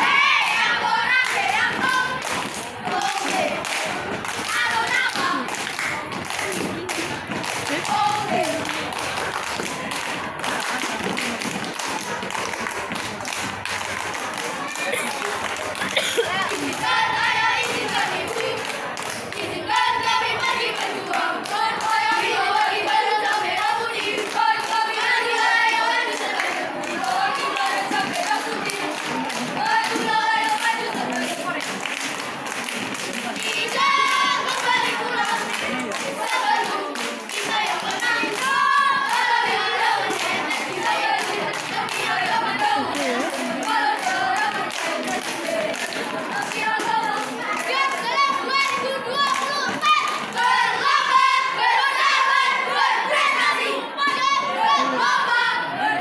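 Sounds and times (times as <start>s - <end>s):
children chanting in unison: 0.0s - 10.3s, 14.5s - 32.4s, 33.0s - 56.0s
hand claps: 1.2s - 17.0s, 17.6s - 22.0s, 26.1s - 50.4s.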